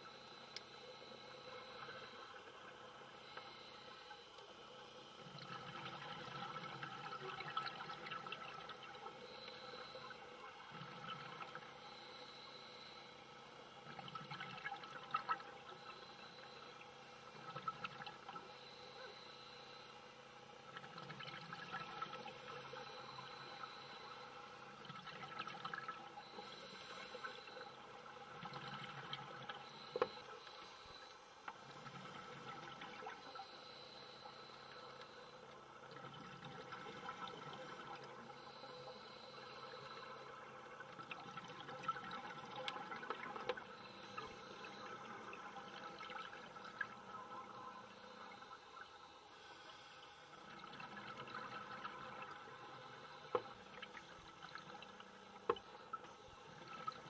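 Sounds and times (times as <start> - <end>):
exhaled bubbles gurgling: 5.2 - 12.1, 20.7 - 29.8, 35.6 - 48.9, 50.4 - 57.0.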